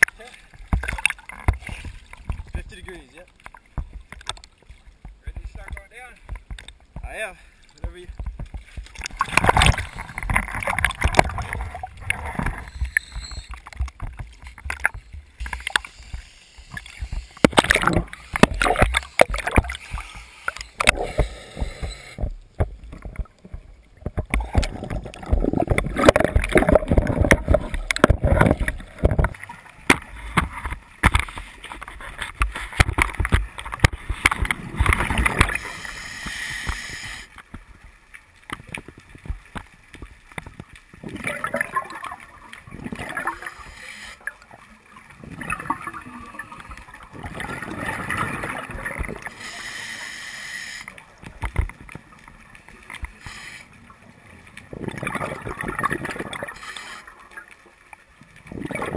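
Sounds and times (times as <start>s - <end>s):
water splash: 7.8s - 37.3s, 38.4s - 50.2s, 54.5s - 58.9s
regulator hissing inhale: 15.4s - 17.5s, 19.0s - 22.3s, 35.5s - 37.4s, 43.3s - 44.4s, 49.2s - 51.0s, 53.1s - 53.9s, 56.5s - 57.1s
bubbling exhaled air underwater: 16.8s - 29.5s, 41.0s - 49.6s, 54.6s - 57.5s, 58.4s - 58.9s.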